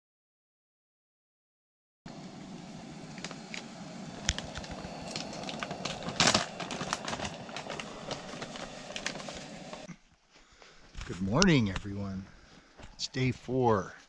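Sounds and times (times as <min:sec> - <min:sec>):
stove burning with a hiss: 0:02.1 - 0:09.9
food packets crinkling: 0:03.1 - 0:09.9.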